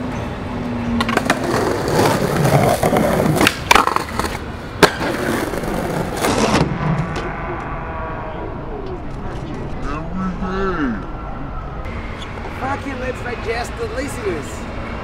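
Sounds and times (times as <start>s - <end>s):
skateboard wheels rolling on pavement: 0.0s - 7.3s
skateboard clacks: 1.0s - 7.2s.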